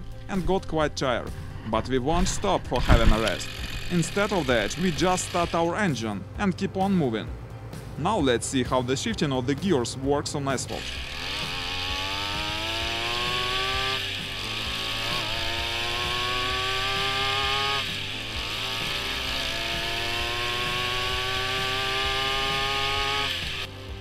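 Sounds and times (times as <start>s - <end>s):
small two-stroke engine revving: 2.2s - 6.0s, 10.7s - 24.0s.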